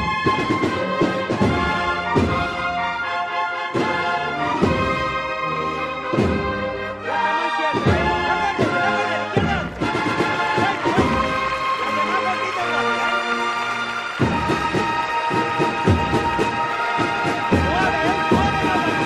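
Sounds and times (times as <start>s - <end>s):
brass sustained chords: 0.0s - 19.0s
low thumping beat: 7.8s - 11.8s, 14.1s - 19.0s.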